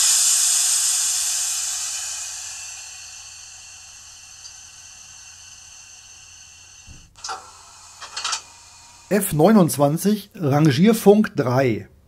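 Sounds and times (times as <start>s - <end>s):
hiss of air-blown sand: 0.0s - 9.4s.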